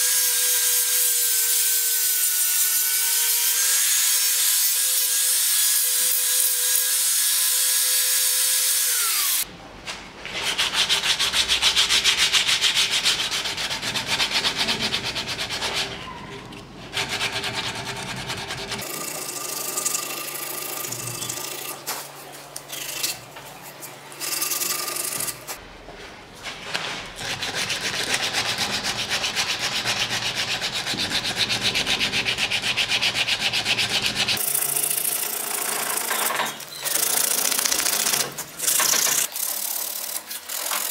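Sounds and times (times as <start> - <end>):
sandpaper rubbing on wood: 10.3 - 16.0, 27.2 - 34.4.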